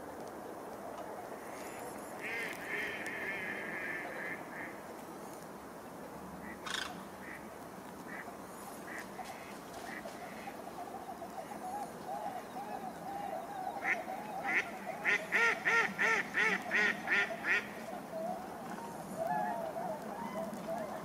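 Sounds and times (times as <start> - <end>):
flock of ducks and swans calling: 1.5 - 4.8, 6.4 - 21.0.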